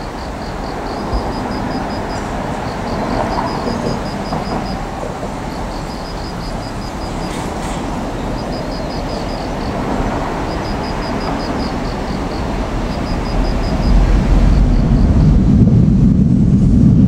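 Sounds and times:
excavator engine rumble: 0:00.0 - 0:17.0
high beeping chirp: 0:05.5 - 0:07.3, 0:10.4 - 0:15.3.

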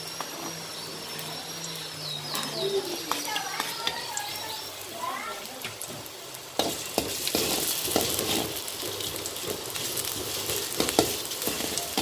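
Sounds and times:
food sizzling in oil: 0:00.0 - 0:12.0
spatula scraping pan: 0:06.6 - 0:12.0.

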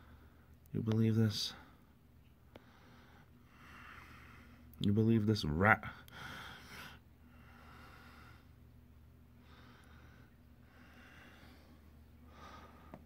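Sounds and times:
low steady hum: 0:00.0 - 0:13.0
faint breaths close to microphone: 0:01.4 - 0:04.7, 0:06.0 - 0:08.6, 0:09.4 - 0:13.0.

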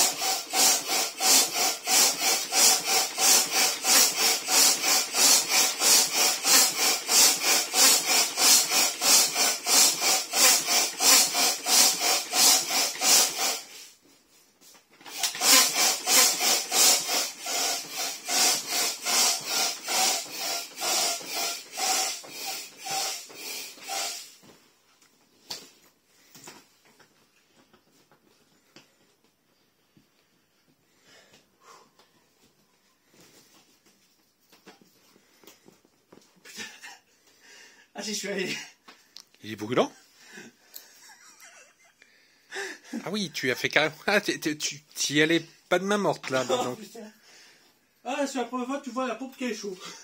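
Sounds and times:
manual air pump strokes: 0:00.0 - 0:24.6, 0:25.3 - 0:37.4, 0:45.6 - 0:46.8.

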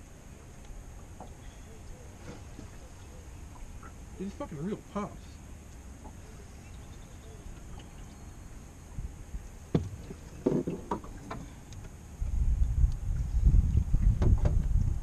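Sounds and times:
wind buffeting microphone: 0:12.1 - 0:15.0.

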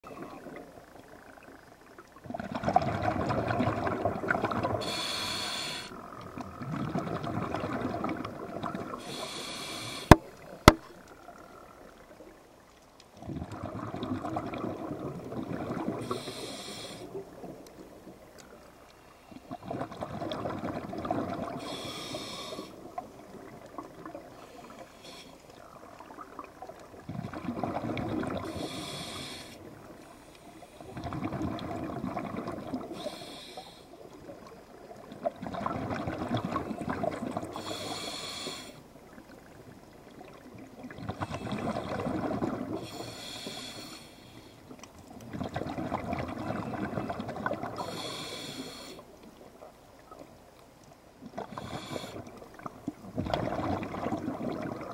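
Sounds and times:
exhaled bubbles rushing: 0:02.2 - 0:04.9, 0:06.3 - 0:09.0, 0:13.2 - 0:16.2, 0:19.5 - 0:21.8, 0:25.8 - 0:28.6, 0:30.8 - 0:33.0, 0:34.3 - 0:37.6, 0:39.8 - 0:42.9, 0:45.2 - 0:47.9, 0:51.3 - 0:54.9
regulator breathing hiss: 0:04.8 - 0:05.9, 0:09.0 - 0:10.3, 0:16.0 - 0:17.2, 0:21.6 - 0:22.8, 0:24.4 - 0:25.6, 0:28.4 - 0:30.9, 0:32.9 - 0:34.0, 0:37.5 - 0:38.8, 0:42.8 - 0:44.6, 0:47.8 - 0:49.1, 0:51.5 - 0:52.3.

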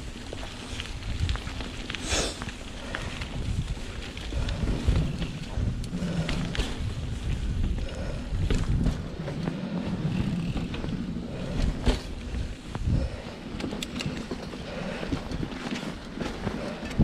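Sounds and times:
bike clicks and rattles: 0:00.0 - 0:17.0
bike tyres rumbling on dirt: 0:00.0 - 0:17.0
wind on microphone: 0:03.0 - 0:15.7.

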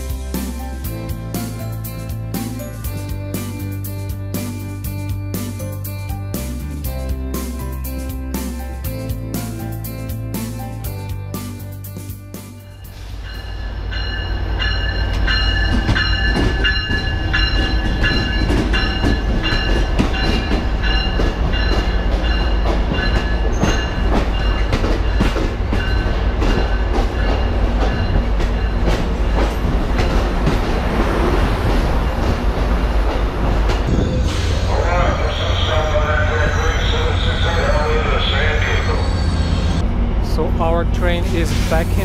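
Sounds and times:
train rumble: 0:06.4 - 0:42.0
high metallic squeal: 0:33.9 - 0:39.8.

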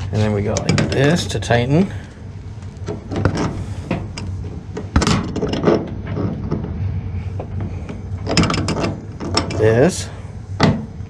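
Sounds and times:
low steady hum: 0:00.0 - 0:11.0
hose coupling clicks and knocks: 0:07.9 - 0:09.6.

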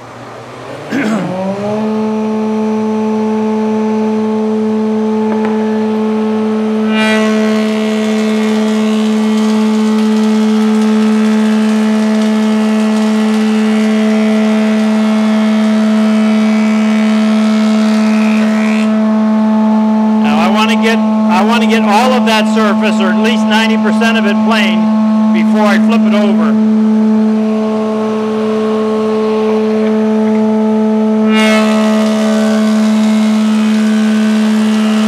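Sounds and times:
thickness planer humming: 0:00.0 - 0:35.0
planer cutting board: 0:06.8 - 0:19.0, 0:31.2 - 0:35.0.

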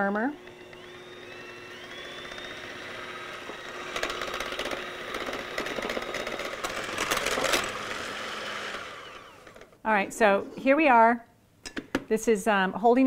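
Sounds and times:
electric hand mixer whining: 0:00.0 - 0:09.8.

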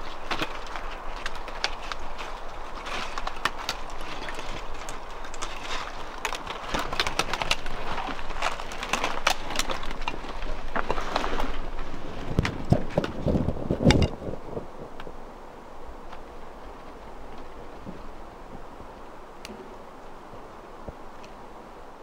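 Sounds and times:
branches snapping: 0:00.0 - 0:14.2.

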